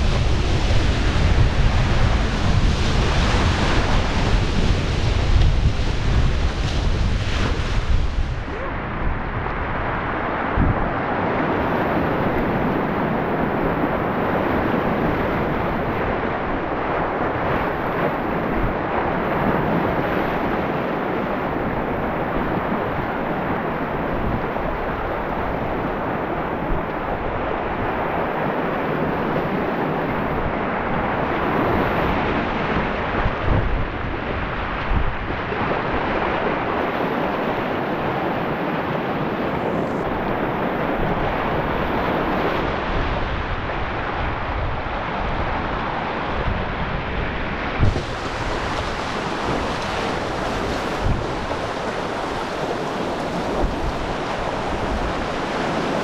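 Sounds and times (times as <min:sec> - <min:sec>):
river rapids rushing: 0:00.0 - 0:33.2, 0:34.4 - 0:56.0.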